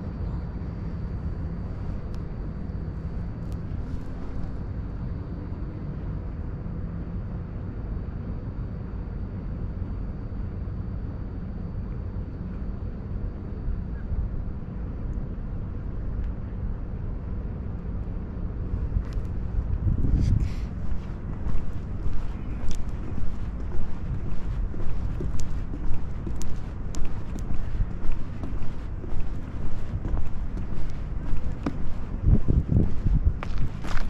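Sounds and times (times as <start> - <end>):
low outdoor rumble: 0.0 - 34.0.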